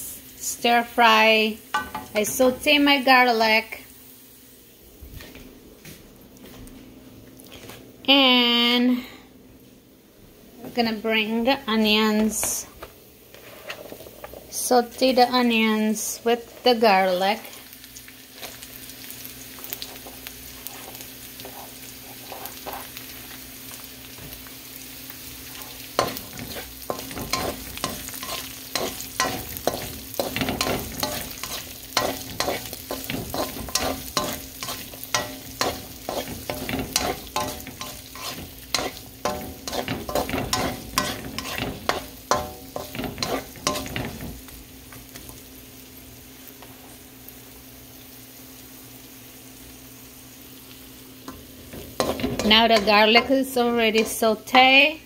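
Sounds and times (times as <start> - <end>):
onions sizzling in oil: 0.0 - 5.0, 10.8 - 55.0
spatula scraping a wok: 13.3 - 14.7, 19.7 - 23.2, 25.4 - 44.5, 51.3 - 54.4.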